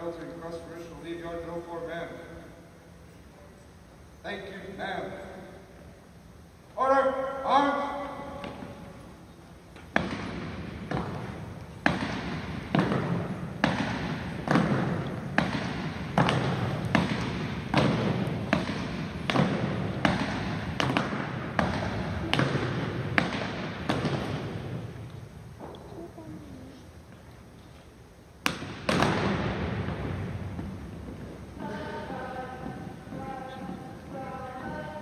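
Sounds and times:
marching stomps on wooden floor: 9.9 - 24.5.

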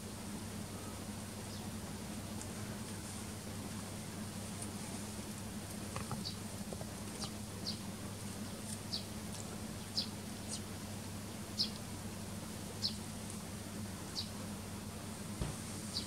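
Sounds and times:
steady low hum: 0.0 - 16.0
sparrow chirping: 7.2 - 7.8, 8.6 - 9.2, 9.8 - 10.7, 11.6 - 11.8, 12.8 - 13.1, 14.1 - 14.4.

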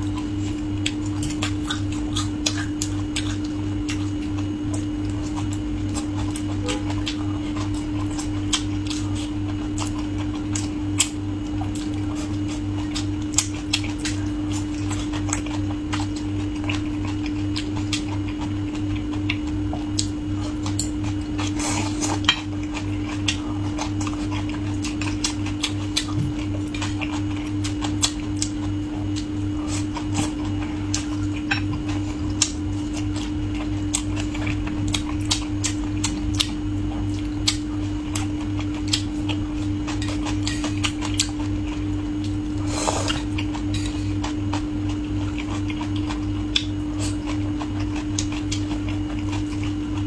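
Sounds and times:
steady hum: 0.0 - 50.0.

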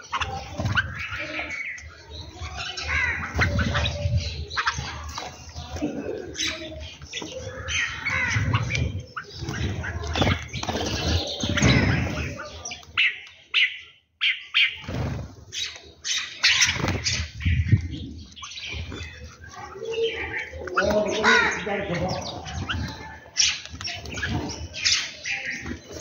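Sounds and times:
small birds chirping: 0.0 - 26.0
wings fluttering: 7.1 - 12.5, 14.6 - 21.0.

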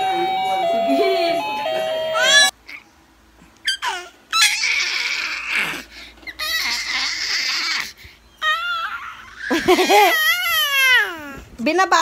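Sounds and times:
baby squealing: 2.2 - 2.8, 3.6 - 11.4.

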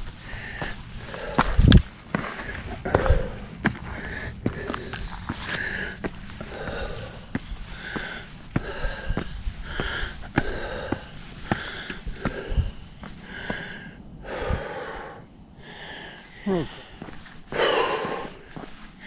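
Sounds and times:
footsteps on gravel and rock: 0.0 - 13.7, 16.9 - 19.0
heavy breathing: 0.0 - 19.0.

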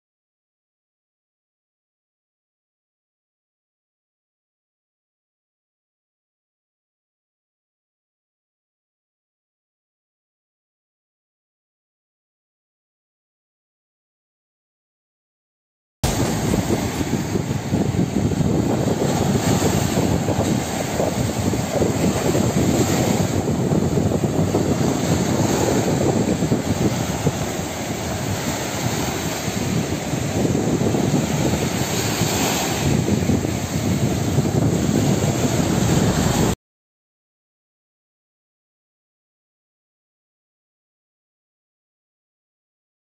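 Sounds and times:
sea surf on beach: 16.0 - 36.6
wind rumbling on microphone: 16.0 - 36.6.

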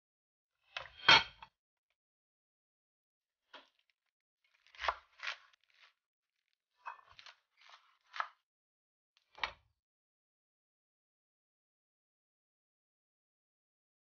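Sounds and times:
leaves crunching and tearing: 4.5 - 5.9.

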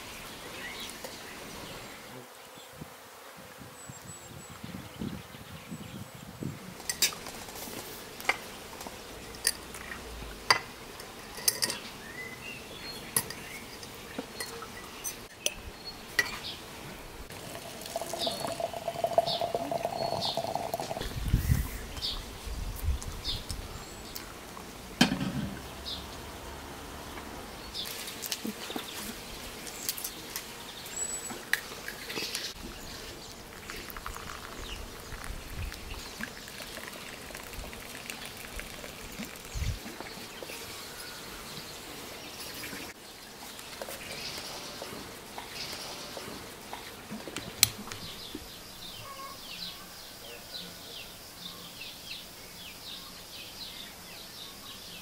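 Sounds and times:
water pouring into teapot: 17.3 - 21.0, 32.7 - 40.0.

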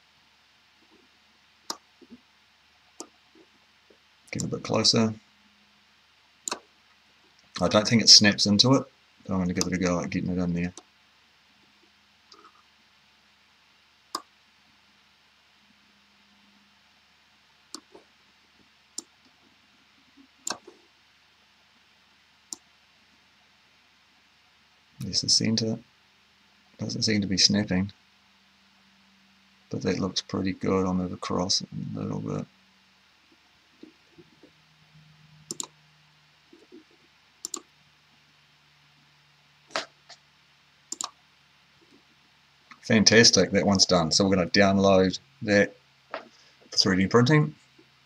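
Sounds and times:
faint low hum: 0.0 - 48.0
computer mouse clicking: 3.0 - 3.2, 6.4 - 6.7, 17.7 - 18.0, 20.4 - 20.8, 35.4 - 35.8, 36.6 - 37.7, 40.9 - 41.2.

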